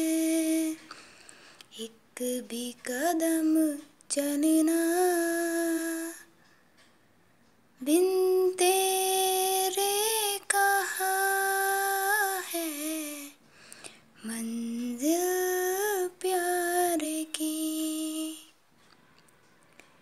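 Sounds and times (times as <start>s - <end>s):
woman singing unaccompanied: 0.0s - 1.0s, 1.7s - 6.3s, 7.8s - 13.4s, 14.2s - 18.6s.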